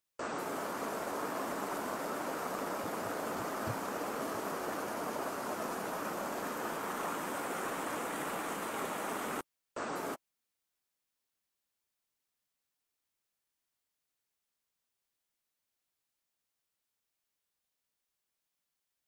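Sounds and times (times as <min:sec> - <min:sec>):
stream rushing over rocks: 0:00.2 - 0:10.2.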